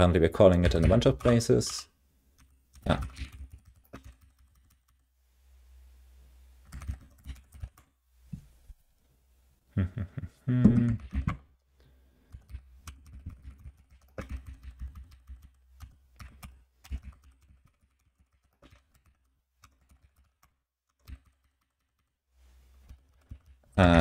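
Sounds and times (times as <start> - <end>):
keyboard typing: 0.5 - 1.8, 2.4 - 5.1, 6.6 - 7.9, 12.3 - 22.2, 22.8 - 24.0
person humming: 9.8 - 11.3.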